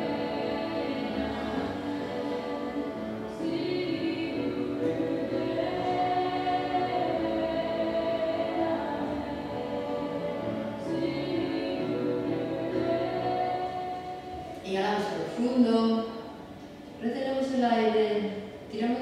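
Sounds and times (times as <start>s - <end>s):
choir singing long held notes: 0.0s - 14.6s.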